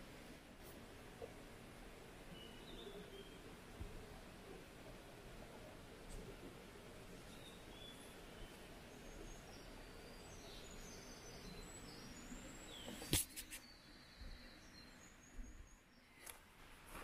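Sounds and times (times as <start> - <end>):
faint birdsong chirps: 0.0 - 16.6
steady background hiss: 0.0 - 17.0.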